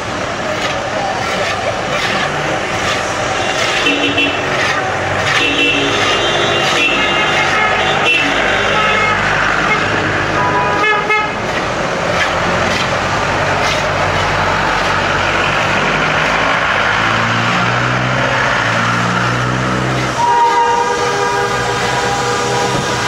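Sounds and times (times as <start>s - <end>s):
vehicle engines running: 0.0s - 23.0s
steam locomotive whistle: 20.1s - 23.0s
short horn toot: 20.2s - 22.9s.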